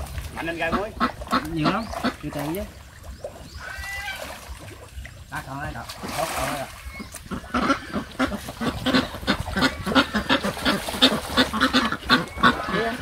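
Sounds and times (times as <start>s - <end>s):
farm animals calling: 0.4s - 13.0s.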